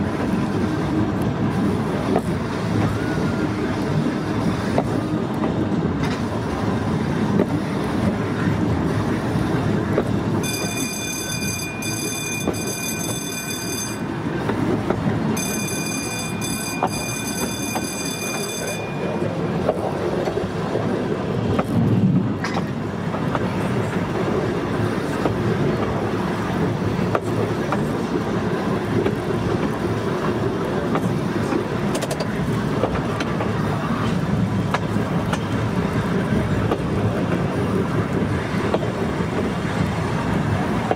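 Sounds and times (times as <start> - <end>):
train wheels rumbling on rails: 0.0 - 40.9
high warning tone: 10.4 - 14.1, 15.4 - 19.4.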